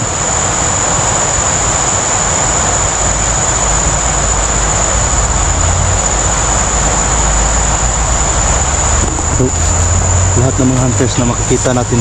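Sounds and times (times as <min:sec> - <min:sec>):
high-pitched insect drone: 0:00.0 - 0:12.0
rushing hiss: 0:00.0 - 0:12.0
low rumble: 0:02.8 - 0:12.0.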